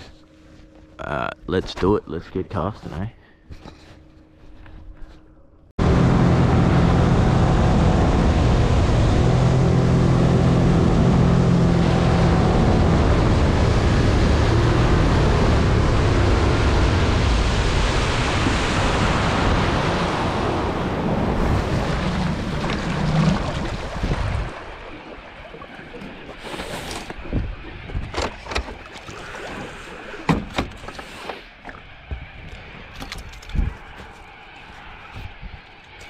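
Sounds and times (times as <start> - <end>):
outboard motor running: 5.8 - 17.4
water rushing past hull: 5.8 - 31.3
wind buffeting microphone: 32.0 - 35.9.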